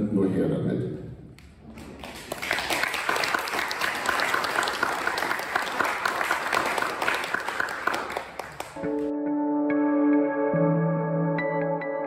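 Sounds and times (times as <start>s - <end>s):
audience applauding: 1.7s - 9.1s.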